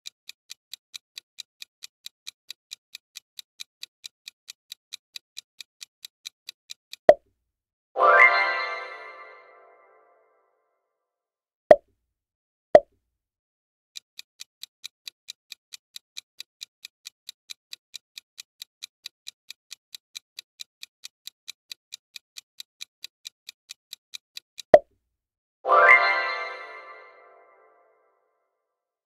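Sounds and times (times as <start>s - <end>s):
countdown timer ticking: 8.0s - 10.0s.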